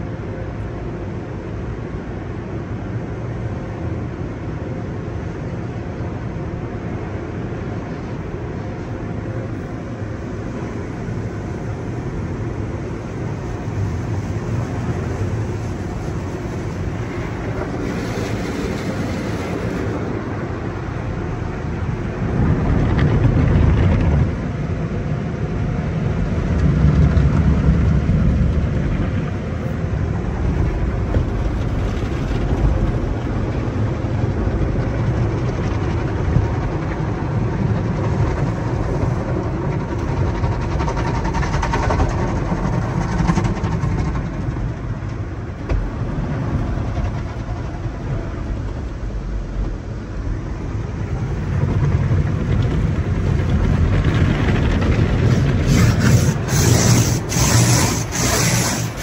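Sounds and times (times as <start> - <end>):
car wash water spraying: 9.5 - 22.3, 54.6 - 59.0.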